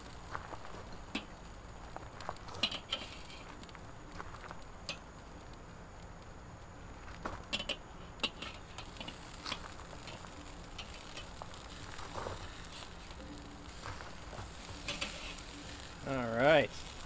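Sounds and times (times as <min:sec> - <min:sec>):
metal spatula scraping grill grate: 0:02.5 - 0:03.5, 0:07.5 - 0:17.0.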